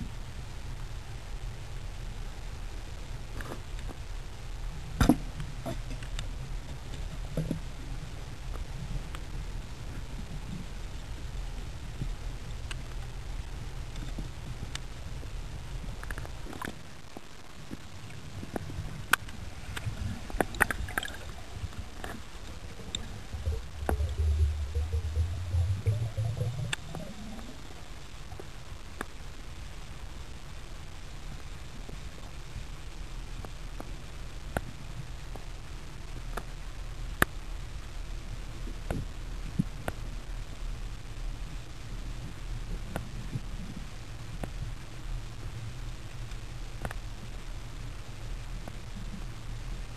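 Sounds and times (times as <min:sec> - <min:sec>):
underwater rumble of moving water: 0:04.5 - 0:29.6
sharp underwater clicks: 0:18.0 - 0:27.6
low underwater rumble: 0:18.4 - 0:28.6.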